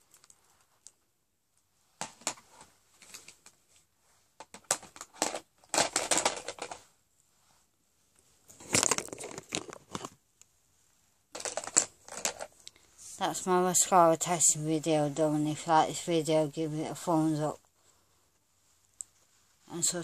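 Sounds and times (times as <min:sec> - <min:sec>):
crackly rustling and crinkling: 0:00.0 - 0:16.2, 0:16.8 - 0:20.0.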